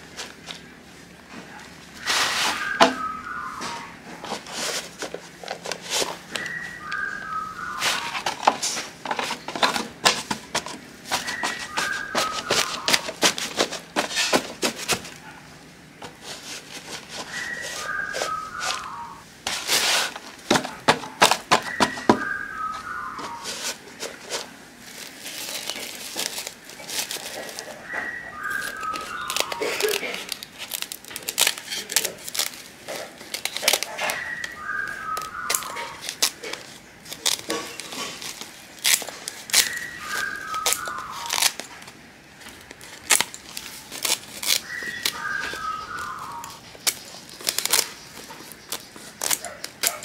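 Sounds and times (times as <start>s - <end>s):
plastic sack crinkling: 1.9s - 15.3s, 16.0s - 50.0s
whistled call: 2.0s - 4.1s, 6.3s - 8.3s, 11.1s - 13.1s, 17.2s - 19.2s, 21.6s - 23.7s, 27.6s - 30.0s, 34.0s - 36.1s, 39.6s - 41.4s, 44.6s - 46.6s.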